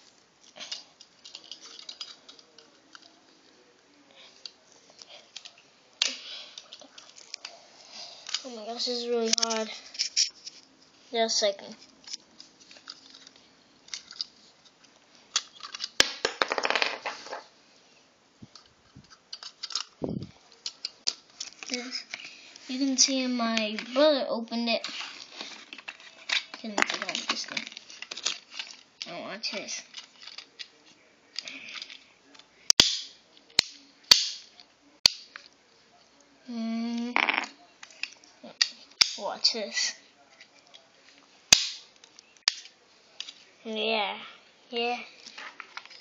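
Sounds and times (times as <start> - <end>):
toy cap gun bangs: 32.8 - 34.5, 41.5 - 41.8
plastic snapping: 41.5 - 42.7.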